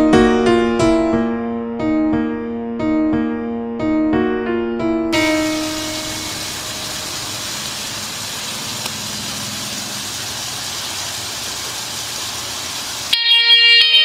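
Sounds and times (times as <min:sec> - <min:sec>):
steady hiss-like noise: 0:05.2 - 0:13.2.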